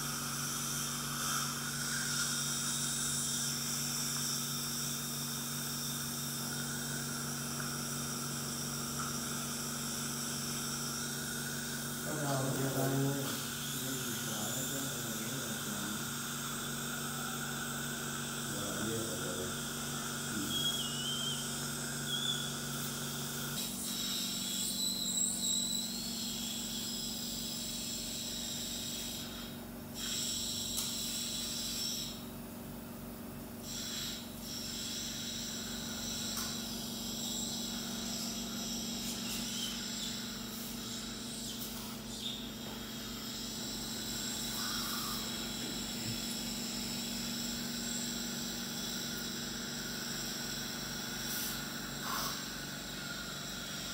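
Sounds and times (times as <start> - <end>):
dental equipment hiss and hum: 0.0 - 53.9
faint wavering whistles: 18.5 - 29.4, 33.7 - 53.9.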